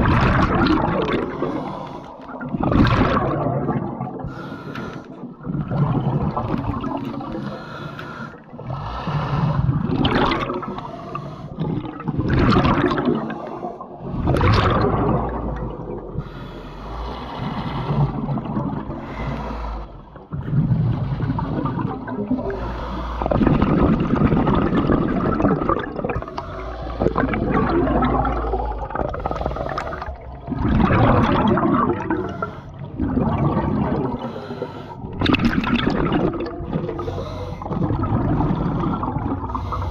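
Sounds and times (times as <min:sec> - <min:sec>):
exhaled air bubbling underwater: 0:00.0 - 0:39.9
regulator inhale hiss: 0:01.4 - 0:02.3, 0:04.3 - 0:05.2, 0:07.4 - 0:09.7, 0:19.0 - 0:20.0, 0:22.5 - 0:23.3, 0:34.2 - 0:35.0, 0:37.0 - 0:37.7, 0:39.5 - 0:39.9.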